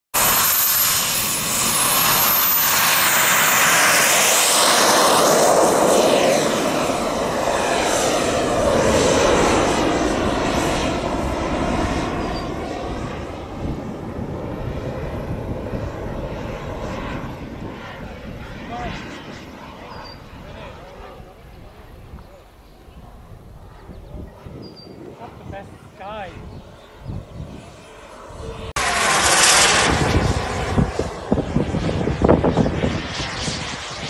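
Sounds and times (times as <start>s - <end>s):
jet turbine whine: 0.1s - 34.0s.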